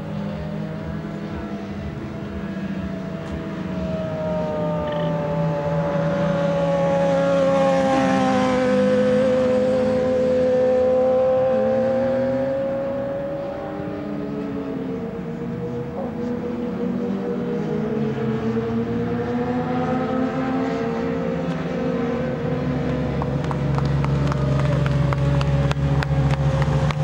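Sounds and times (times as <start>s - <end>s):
motorcycle engine passing by: 1.3s - 14.5s.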